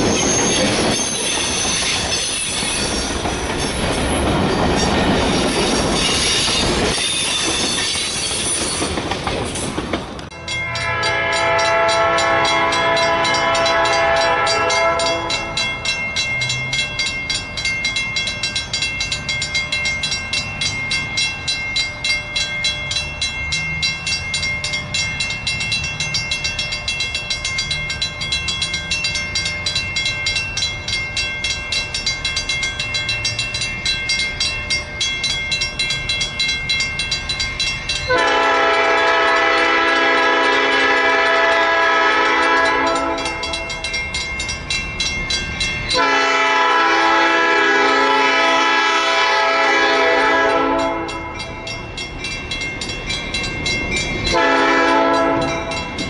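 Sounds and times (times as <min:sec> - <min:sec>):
crossing bell ringing: 0:00.0 - 0:56.0
locomotive rumble: 0:00.0 - 0:56.0
locomotive horn: 0:10.6 - 0:15.6, 0:38.1 - 0:43.3, 0:45.9 - 0:51.3, 0:54.3 - 0:55.6.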